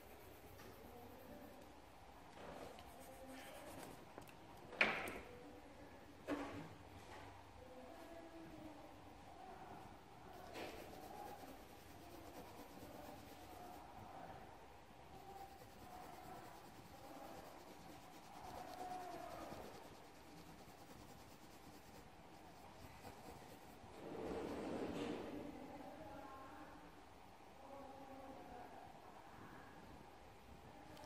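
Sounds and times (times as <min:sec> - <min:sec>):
pencil scratching on paper: 0:00.0 - 0:01.7, 0:02.6 - 0:04.1, 0:10.3 - 0:14.1, 0:15.1 - 0:24.4.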